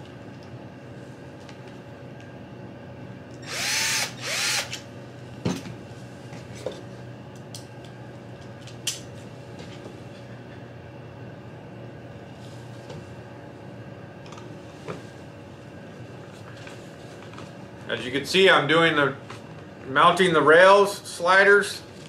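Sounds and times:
cordless drill driving screws: 3.4s - 4.8s.

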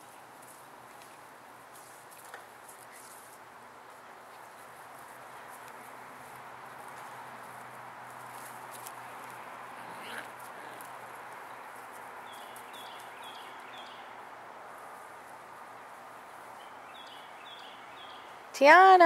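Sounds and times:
faint outdoor background: 0.0s - 19.0s
bird chirping: 9.9s - 14.2s, 16.1s - 18.5s.

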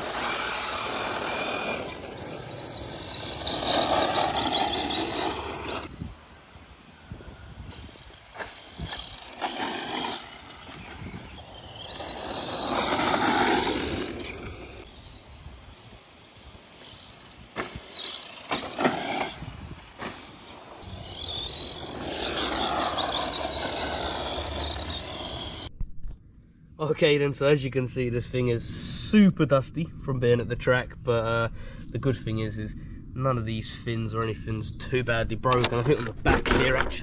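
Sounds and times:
electric motor whining: 0.0s - 6.0s, 7.3s - 15.2s, 16.6s - 25.7s
tyres scrabbling on loose dirt: 0.0s - 6.0s, 7.6s - 15.0s, 16.7s - 25.7s, 35.4s - 37.0s.

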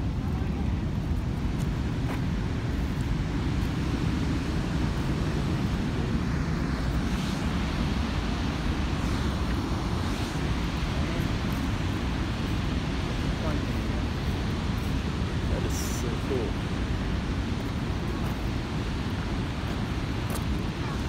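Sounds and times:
waterfall rushing: 3.9s - 21.0s.

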